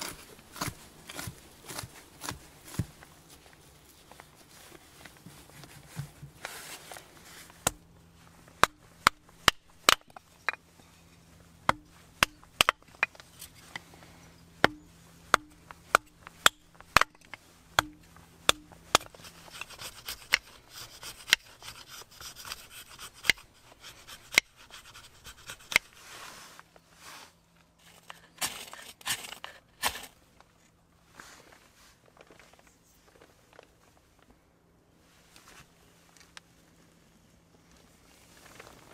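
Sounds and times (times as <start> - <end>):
knife shaving dry wood: 0.0 - 26.6, 27.8 - 30.2
sharp wooden knocks: 14.6 - 19.6.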